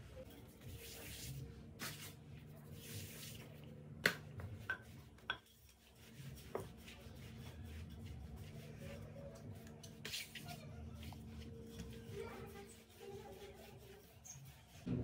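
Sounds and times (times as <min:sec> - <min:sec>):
rolling pin rolling over dough: 0:04.2 - 0:14.9.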